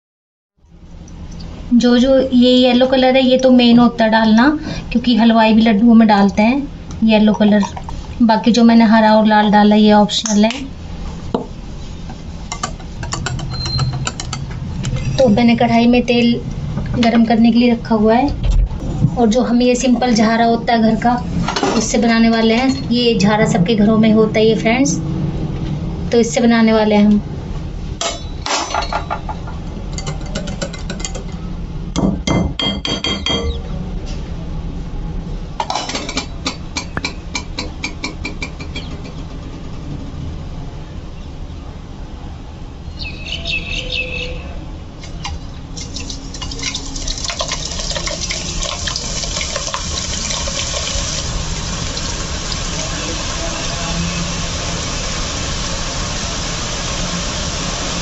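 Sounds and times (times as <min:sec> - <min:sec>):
utensils clinking on glass bowl: 0:45.8 - 0:49.8
batter sizzling in hot oil: 0:45.8 - 0:58.0.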